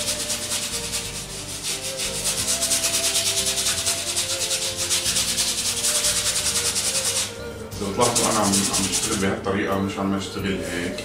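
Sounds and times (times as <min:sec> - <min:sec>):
paintbrush scrubbing on canvas: 0:00.0 - 0:09.4.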